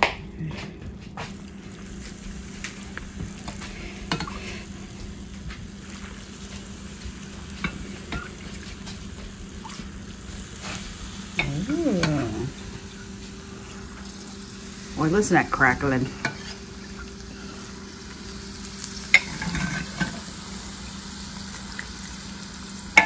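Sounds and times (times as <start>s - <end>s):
lard sizzling over cracklings: 1.2s - 23.0s.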